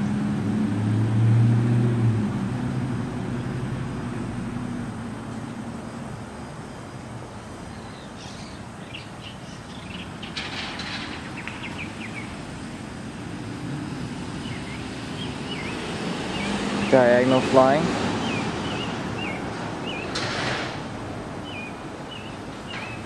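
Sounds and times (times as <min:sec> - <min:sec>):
low drone: 0:00.0 - 0:06.7
distant traffic hum: 0:00.0 - 0:23.0
birds chirping: 0:02.2 - 0:23.0.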